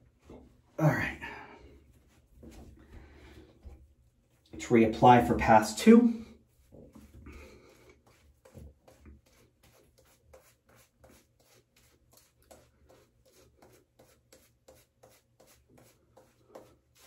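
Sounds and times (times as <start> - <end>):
shaving brush swishing lather: 3.6 - 17.0.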